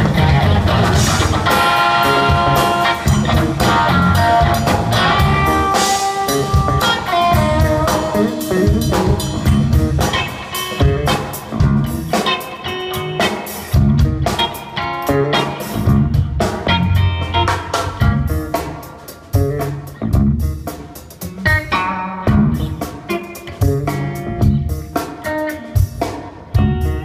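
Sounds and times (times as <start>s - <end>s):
electric guitar single-note lines: 0.0s - 16.1s
bass guitar: 0.0s - 27.0s
drum kit steady beat: 0.0s - 27.0s.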